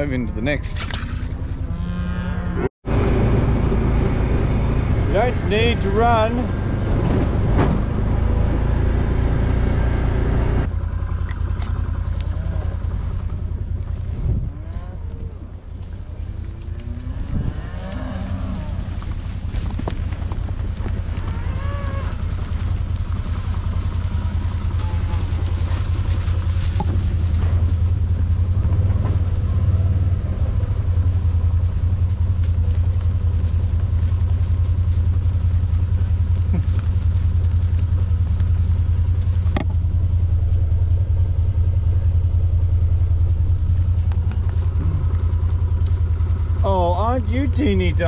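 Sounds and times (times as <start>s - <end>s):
engine idling: 9.8s - 16.8s, 18.2s - 48.0s.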